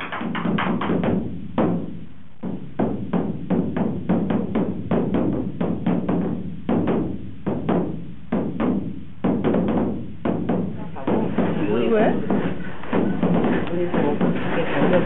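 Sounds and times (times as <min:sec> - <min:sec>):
barrel drum beaten with sticks: 0:00.0 - 0:15.0.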